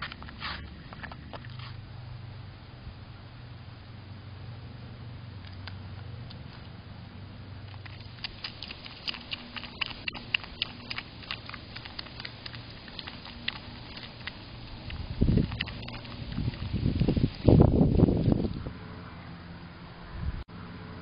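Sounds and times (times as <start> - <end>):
animal chewing vegetable: 0.0 - 1.9, 7.6 - 18.7
low steady hum: 0.0 - 21.0.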